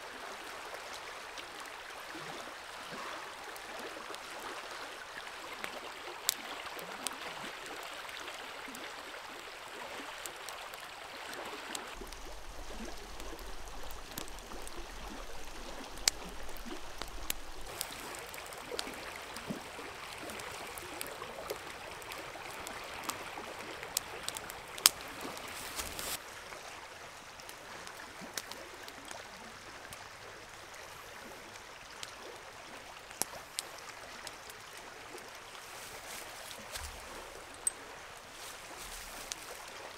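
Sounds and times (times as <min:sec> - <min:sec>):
river flowing over rocks: 0:00.0 - 0:28.9
campfire popping and crackling: 0:03.4 - 0:26.2, 0:27.2 - 0:39.9.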